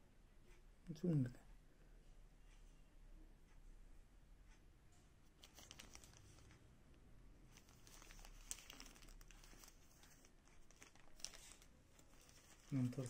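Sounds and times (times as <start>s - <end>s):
plastic bag crinkling: 5.3s - 6.4s, 7.5s - 13.0s.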